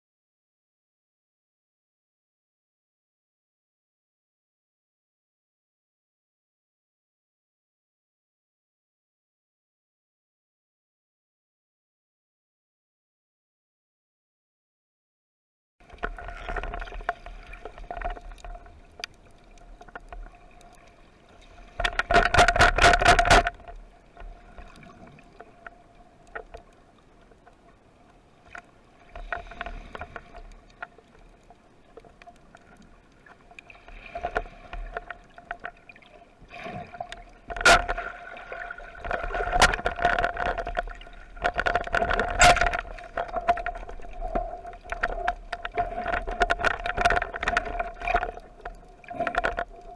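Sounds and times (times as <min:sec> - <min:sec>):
clicking and bubbling crackle: 0:15.8 - 0:49.9
underwater steady hum: 0:15.8 - 0:49.9.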